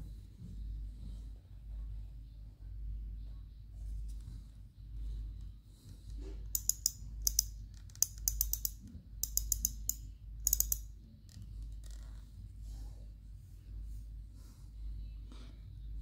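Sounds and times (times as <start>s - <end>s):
fishing reel clicking: 6.6s - 10.9s.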